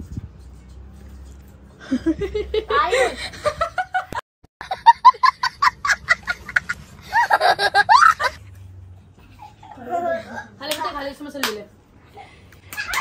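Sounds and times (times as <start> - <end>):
child laughing: 4.6 - 8.4.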